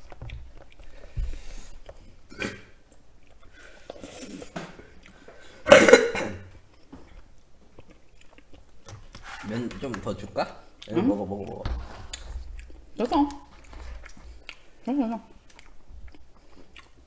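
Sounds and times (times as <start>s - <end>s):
person coughing: 5.6s - 6.5s.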